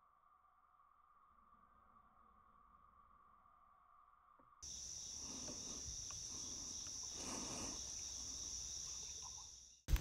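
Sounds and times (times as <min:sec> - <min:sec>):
insect chorus high-pitched shrill: 0:04.6 - 0:09.8.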